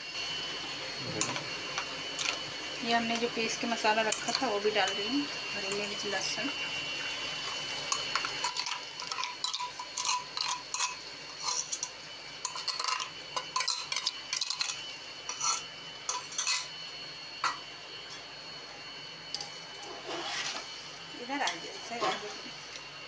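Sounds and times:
metal spoon scraping a bowl: 7.9 - 16.7, 19.4 - 20.7, 21.9 - 22.4.

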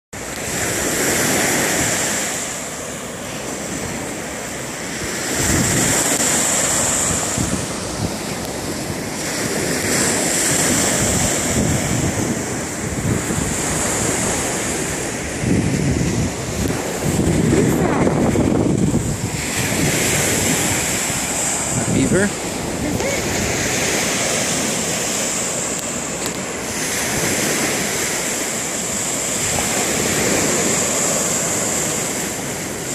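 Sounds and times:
small waves washing on shore: 0.2 - 32.9
wind buffeting microphone: 0.2 - 32.9.

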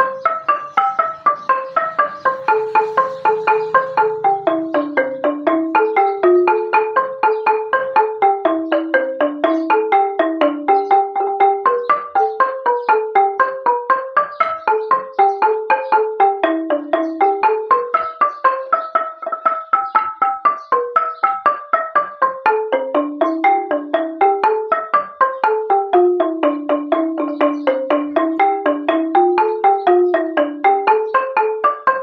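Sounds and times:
wooden xylophone notes: 0.0 - 32.0.

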